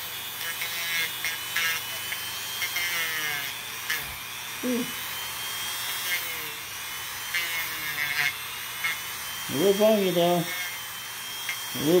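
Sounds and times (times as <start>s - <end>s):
electric rotary tool whining: 0.0s - 12.0s.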